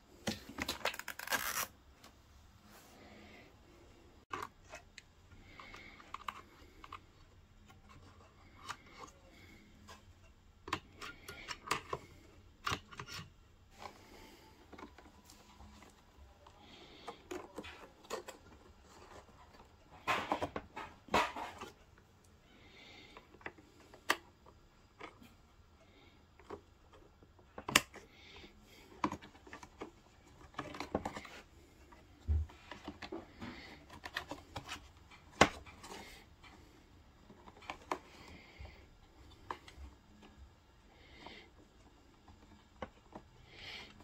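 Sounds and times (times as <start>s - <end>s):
plastic clicks and rustling: 0.2s - 1.7s, 4.3s - 22.1s, 26.2s - 40.6s.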